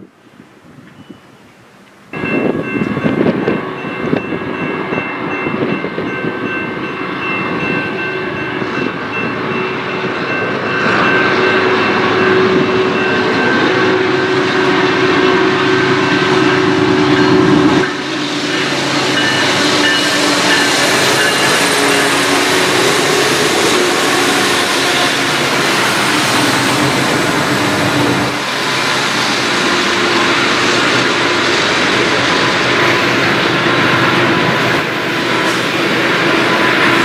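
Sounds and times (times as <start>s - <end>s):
diesel locomotive engines rumbling: 0.0s - 37.0s
train air horn chord: 10.8s - 28.9s.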